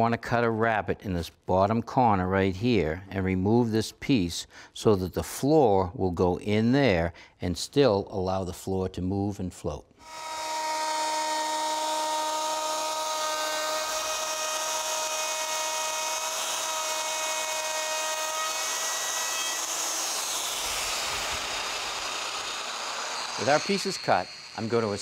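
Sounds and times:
router whining while cutting wood: 10.0s - 25.0s.

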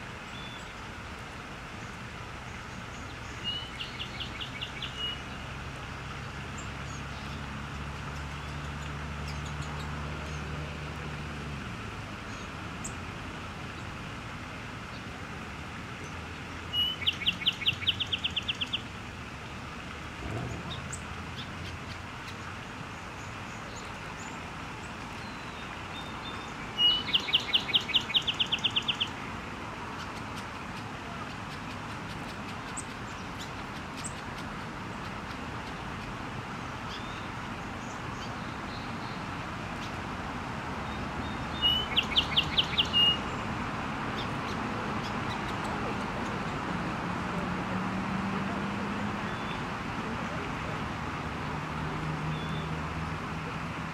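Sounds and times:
outdoor background hiss: 0.0s - 53.9s
songbird trilling: 3.3s - 5.4s, 16.7s - 18.9s, 25.2s - 29.2s, 40.8s - 43.3s.

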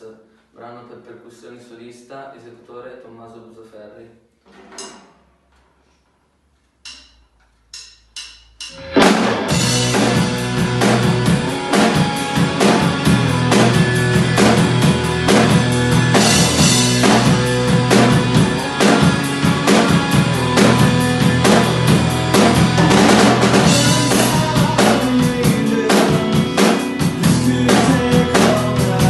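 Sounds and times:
drum kit beat: 6.8s - 29.0s
rock backing track: 6.9s - 29.0s.

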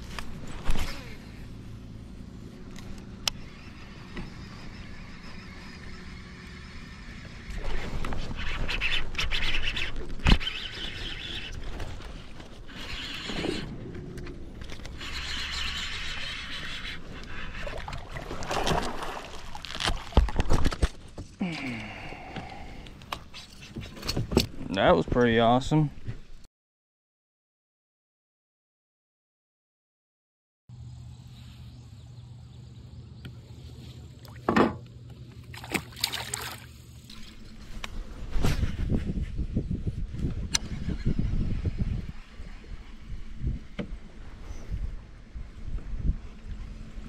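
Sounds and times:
water splashing: 17.4s - 20.6s, 35.4s - 37.7s.

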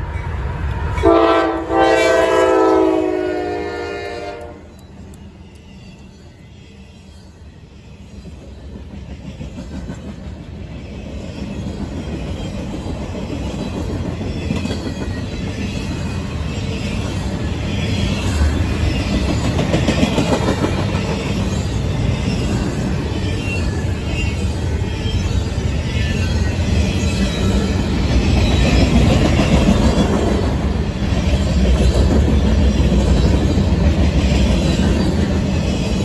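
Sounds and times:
freight train wheels rumbling on rails: 0.0s - 36.0s.

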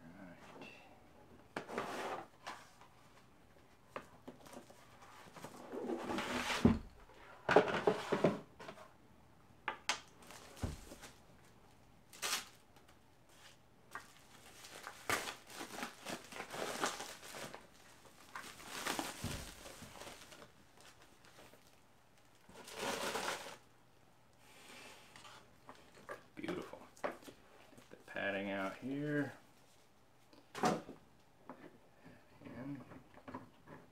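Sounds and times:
paper wrapping rustling: 12.1s - 23.6s.

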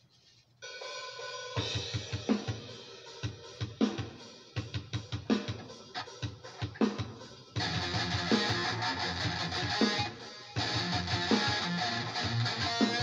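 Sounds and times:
drum beat: 1.6s - 13.0s
electric guitar chord: 7.6s - 13.0s.

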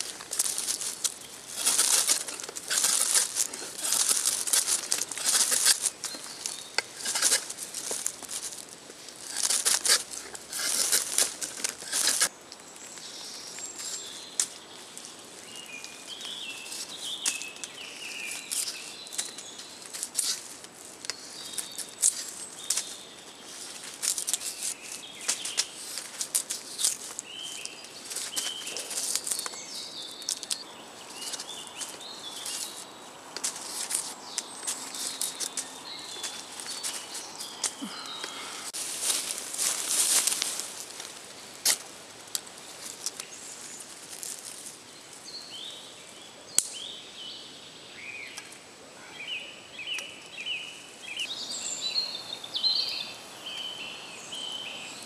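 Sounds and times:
knife shaving wooden stick: 0.0s - 12.3s.

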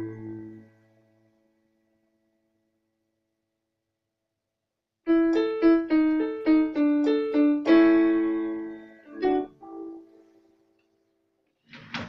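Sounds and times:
digital piano playing: 0.0s - 1.3s, 5.1s - 10.4s.

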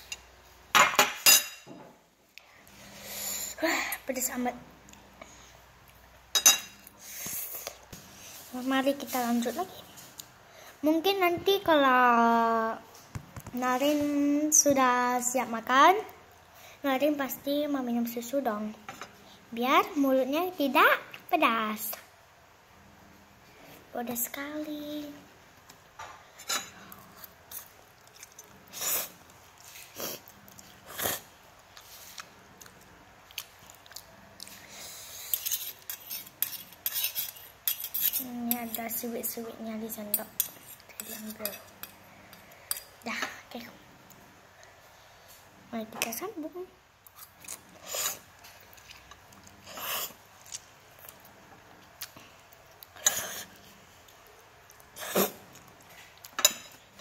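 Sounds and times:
chewing: 26.8s - 36.0s
child slurping noodles: 29.8s - 31.3s, 49.6s - 50.2s, 55.0s - 55.5s.

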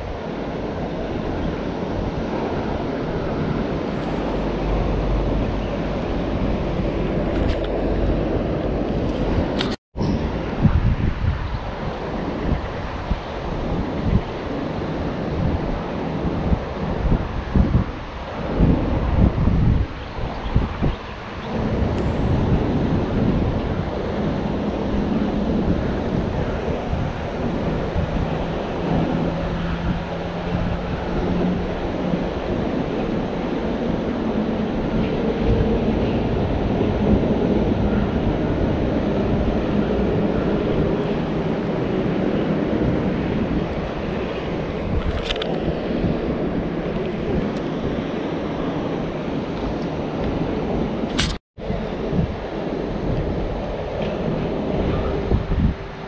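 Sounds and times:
wind buffeting microphone: 0.0s - 56.0s
sharp click: 51.1s - 51.4s.

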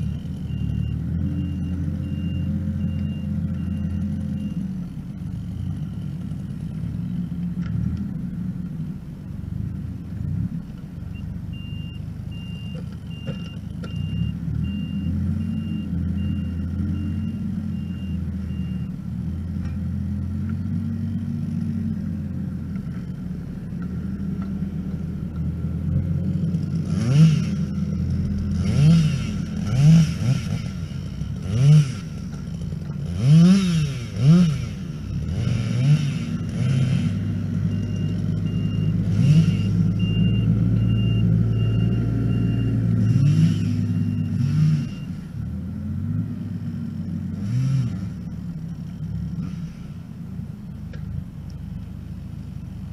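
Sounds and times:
faint repeating beep: 0.0s - 4.7s, 11.1s - 19.0s, 37.2s - 45.2s
diesel engine revving: 0.0s - 52.9s.

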